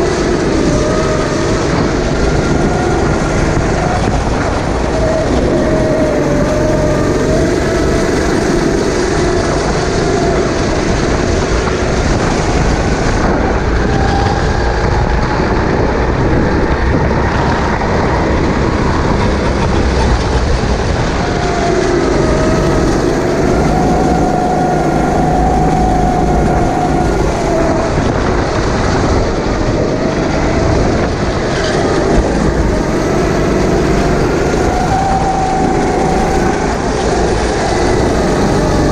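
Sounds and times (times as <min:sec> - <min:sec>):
kart engine racing: 0:00.0 - 0:38.9
wind rumble on microphone: 0:00.0 - 0:38.9.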